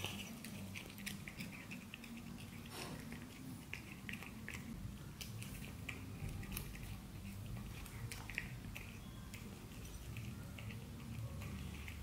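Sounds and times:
cat crunching dried fish: 0.0 - 12.0.

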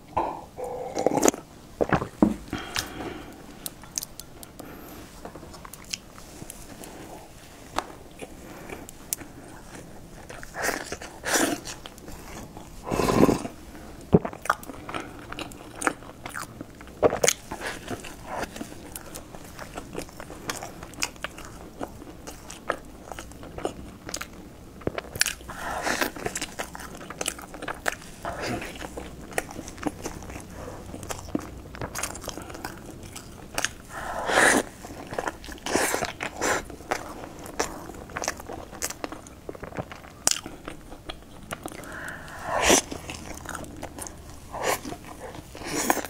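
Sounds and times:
person chewing crunchy pastry: 0.3 - 46.0.

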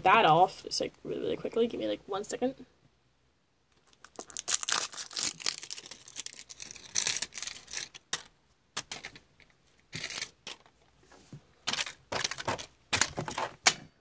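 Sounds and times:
plastic wrapping tearing and crinkling: 3.7 - 10.8, 11.7 - 13.6.

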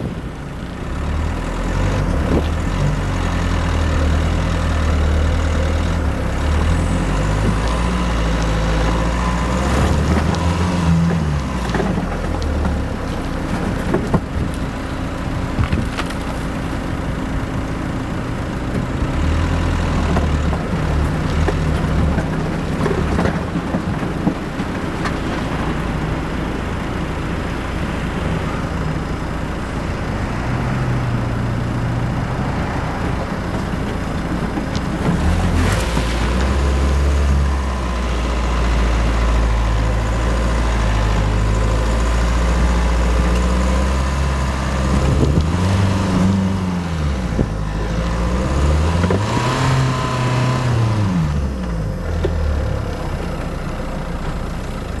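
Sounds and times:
car engine pulling in low gear: 0.0 - 55.0
water rushing under car: 32.2 - 39.8.

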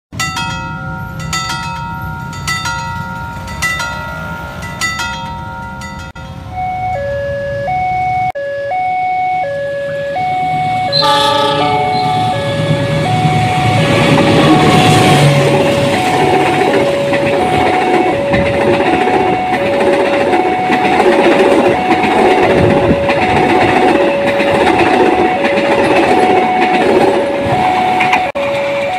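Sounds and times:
train rumbling and clattering: 0.2 - 6.5, 10.6 - 28.9
crossing signal alternating tones: 5.5 - 28.9
train horn blast: 10.8 - 19.6.

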